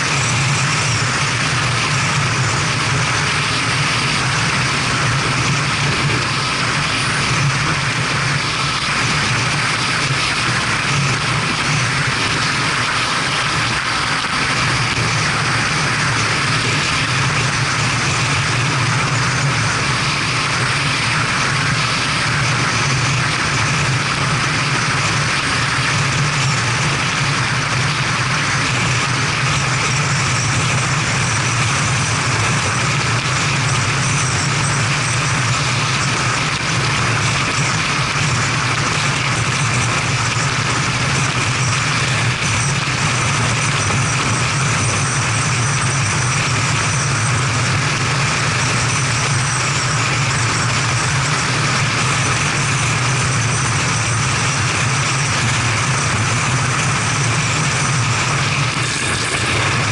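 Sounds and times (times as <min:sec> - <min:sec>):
motorcycle engine running: 0:00.0 - 0:59.9
road noise: 0:00.0 - 0:59.9
wind noise: 0:00.0 - 0:59.9.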